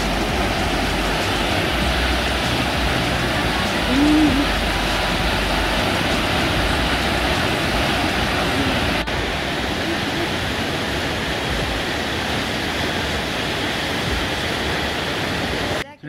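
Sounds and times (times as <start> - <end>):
waterfall rushing into pool: 0.0 - 15.8.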